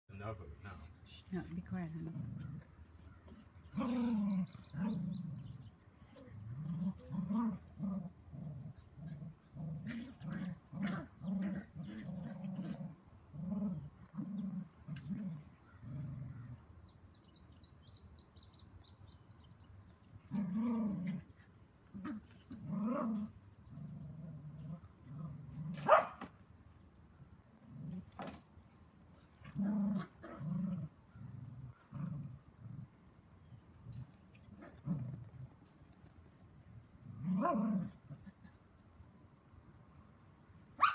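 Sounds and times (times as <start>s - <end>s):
dogs growling in play: 2.0s - 16.8s, 20.3s - 26.0s, 27.6s - 28.4s, 29.4s - 33.0s, 33.8s - 36.0s, 36.9s - 38.5s.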